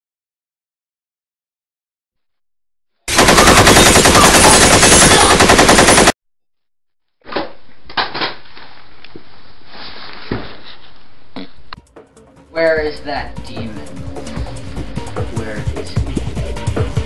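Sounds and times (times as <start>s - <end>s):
rapid machine-gun fire: 3.1s - 6.2s.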